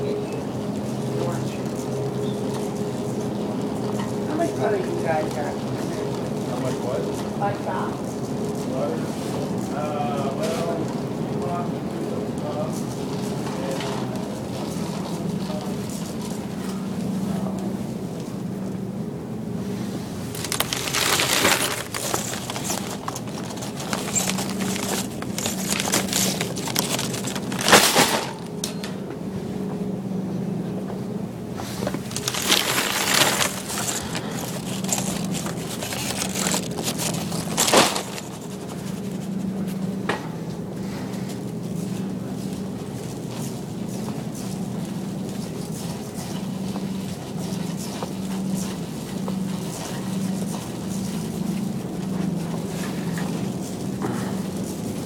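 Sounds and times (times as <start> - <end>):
shopping cart rattling: 12.6 - 16.7, 20.2 - 28.6, 31.8 - 39.4, 41.7 - 55.0
rustling and scraping: 19.8 - 28.6, 31.6 - 39.9, 40.8 - 55.0.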